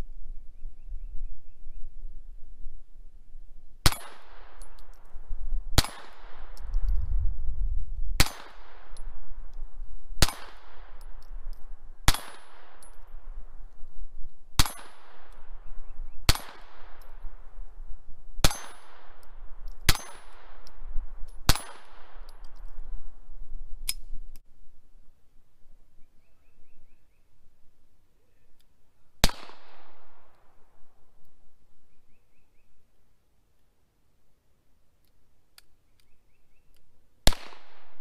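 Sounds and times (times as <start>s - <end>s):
pistol shots with echo: 3.8s - 5.2s, 5.8s - 6.7s, 8.2s - 9.5s, 10.2s - 13.4s, 14.6s - 17.5s, 18.4s - 20.8s, 21.4s - 22.4s, 29.2s - 30.7s, 37.2s - 38.0s.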